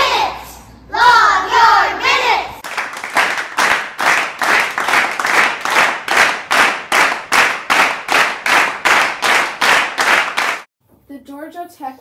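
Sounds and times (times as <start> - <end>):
rhythmic clapping: 2.6 - 10.7.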